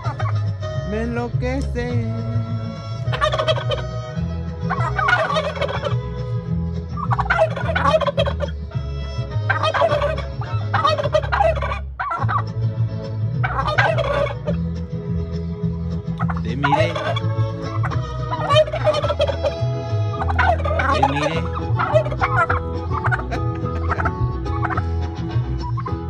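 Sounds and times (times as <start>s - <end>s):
turkeys gobbling: 0.0s - 0.9s, 2.2s - 26.0s
person singing: 0.8s - 3.1s.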